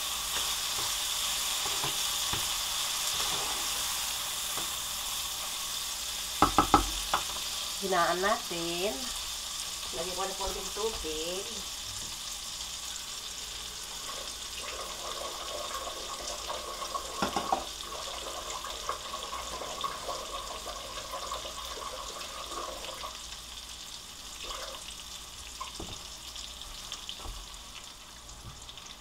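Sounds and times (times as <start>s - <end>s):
chicken sizzling in frying pan: 0.0s - 29.0s
water running from tap: 6.4s - 7.4s, 12.6s - 29.0s.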